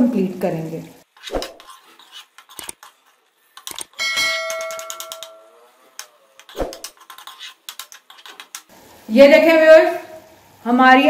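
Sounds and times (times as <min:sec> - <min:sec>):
ladle scraping a pan: 0:01.1 - 0:03.7, 0:06.4 - 0:08.6
bell-like metallic ring: 0:04.0 - 0:05.6.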